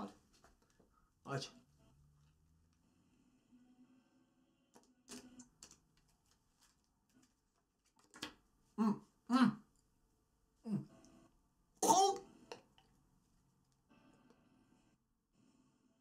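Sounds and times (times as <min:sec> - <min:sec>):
man making throat noises: 0:11.8 - 0:12.3.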